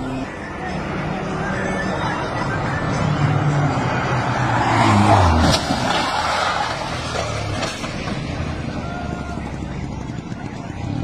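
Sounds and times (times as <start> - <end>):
car engine passing fast: 2.4 - 8.7.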